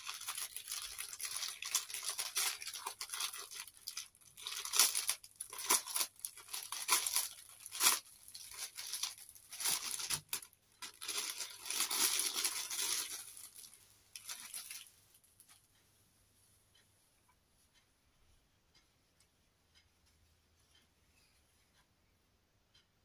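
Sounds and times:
plastic bag tearing and crinkling: 0.0s - 14.9s.

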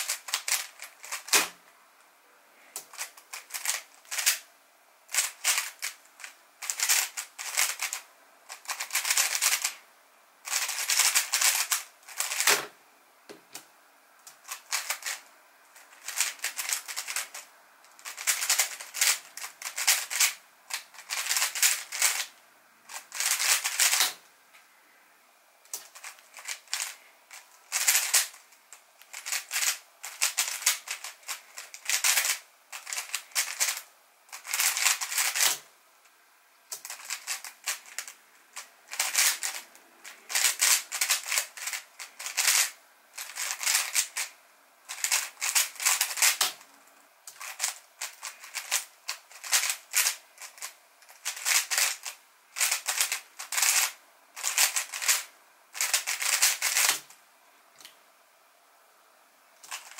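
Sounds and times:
puzzle cube layers clacking: 0.0s - 1.6s, 2.8s - 4.4s, 5.1s - 9.8s, 10.5s - 12.7s, 14.3s - 15.2s, 15.8s - 17.4s, 18.0s - 22.3s, 25.7s - 28.4s, 29.0s - 35.6s, 36.7s - 44.3s, 44.9s - 46.6s, 47.3s - 57.0s.

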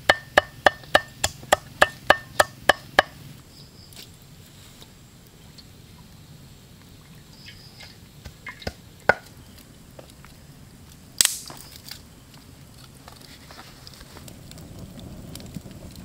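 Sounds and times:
cooking utensils knocking and tapping: 0.0s - 3.1s.

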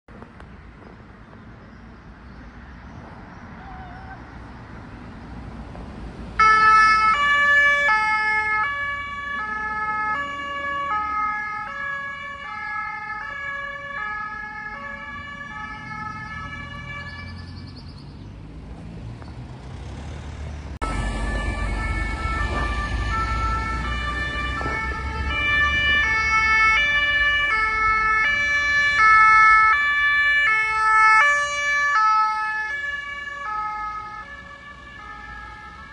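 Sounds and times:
low rumble of road traffic: 0.1s - 35.9s
two-tone emergency sirens: 6.4s - 17.8s, 20.8s - 35.9s.

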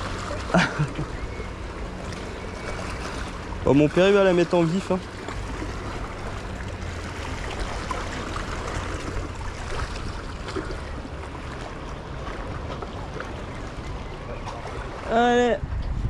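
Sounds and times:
sea water washing against rocks: 0.0s - 1.0s
wind on the microphone: 14.9s - 16.0s.

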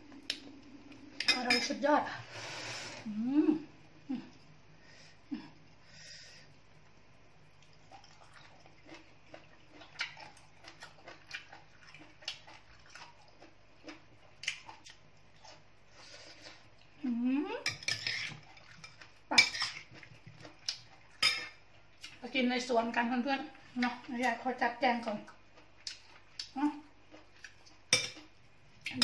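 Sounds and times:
person chewing: 7.6s - 17.0s, 18.1s - 21.2s, 25.5s - 29.0s.

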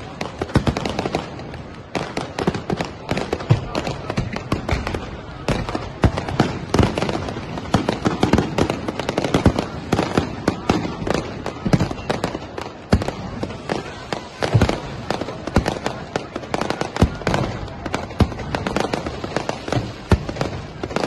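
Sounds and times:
fireworks bursting: 0.0s - 21.0s
fireworks crackling: 0.0s - 21.0s.

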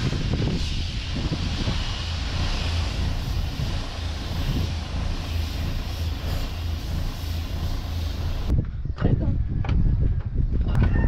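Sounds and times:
paint spray gun hissing: 0.0s - 8.5s
low machine hum: 0.8s - 8.5s.

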